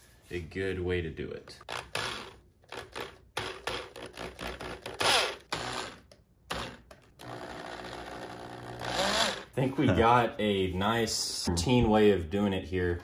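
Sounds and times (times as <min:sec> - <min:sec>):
cordless drill running: 0:01.7 - 0:09.6.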